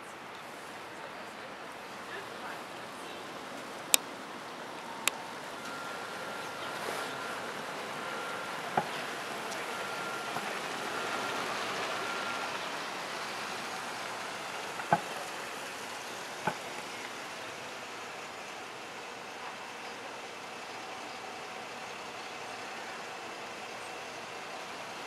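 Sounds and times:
city street noise: 0:00.0 - 0:25.0
faint beep: 0:04.8 - 0:17.0.

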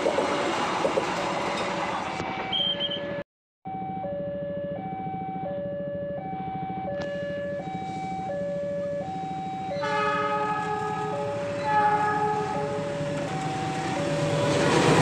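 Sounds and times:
level crossing alarm: 0:02.2 - 0:14.4
locomotive horn: 0:09.7 - 0:13.0.

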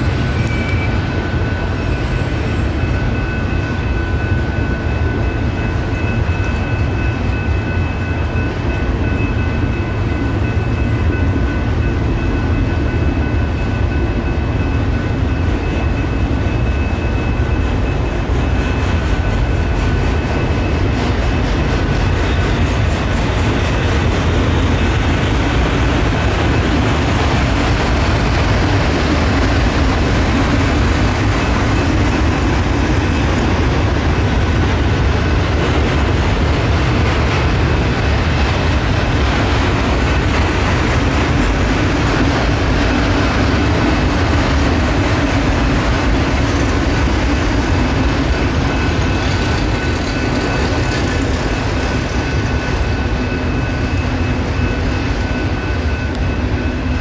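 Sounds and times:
faint high ringing tones: 0:00.0 - 0:20.7, 0:47.7 - 0:57.0
train wheels on rails: 0:00.0 - 0:57.0.

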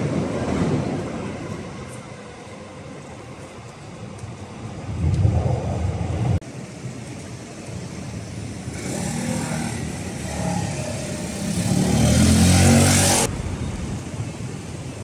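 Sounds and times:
vehicle engine passing: 0:08.7 - 0:14.1.

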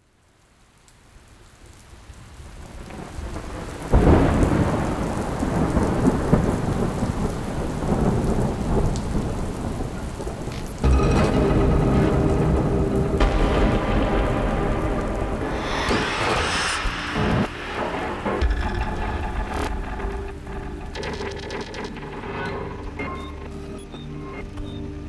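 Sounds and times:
heavy rain: 0:00.0 - 0:25.0
thunder booming and rolling: 0:02.9 - 0:10.4, 0:11.8 - 0:22.8
steady low tones: 0:10.8 - 0:24.4.

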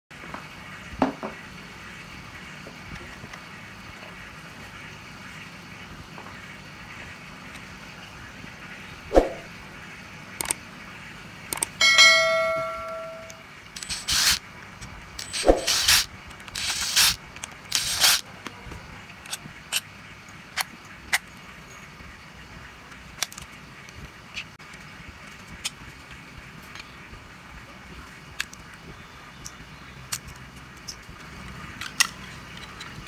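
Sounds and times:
metallic ring: 0:11.8 - 0:14.1
cordless drill bursts: 0:13.8 - 0:14.4, 0:15.2 - 0:18.2.

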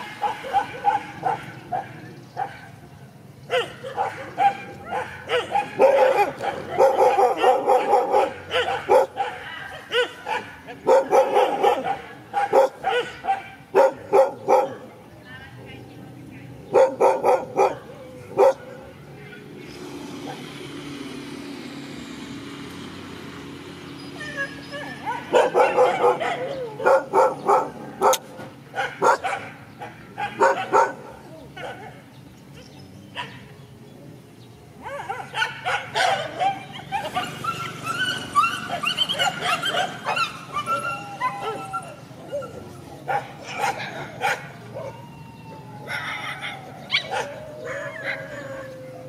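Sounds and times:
dogs barking: 0:00.0 - 0:15.0, 0:16.6 - 0:20.6, 0:24.1 - 0:33.6, 0:34.7 - 0:49.0
vehicle engine running: 0:18.2 - 0:29.4.

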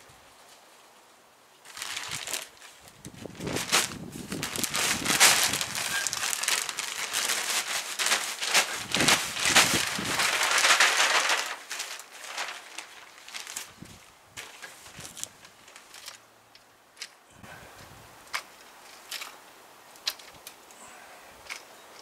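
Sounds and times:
plastic sack crinkling: 0:01.6 - 0:16.2
compost pouring onto soil: 0:03.6 - 0:13.7.

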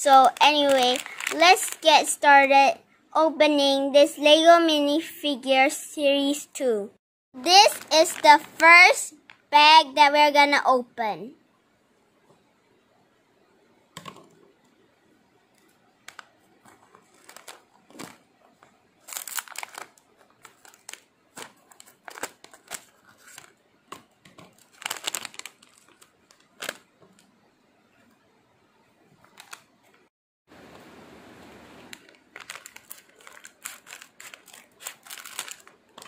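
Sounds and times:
plastic bag crinkling: 0:00.0 - 0:02.0, 0:07.5 - 0:08.6, 0:16.0 - 0:23.6, 0:24.3 - 0:27.2, 0:29.2 - 0:29.6, 0:31.9 - 0:36.0.

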